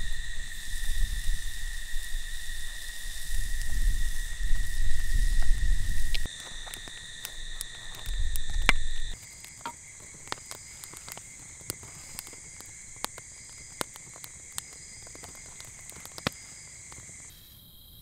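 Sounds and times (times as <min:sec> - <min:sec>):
crickets trilling: 0:00.0 - 0:18.0
sharp clicks: 0:05.1 - 0:17.3.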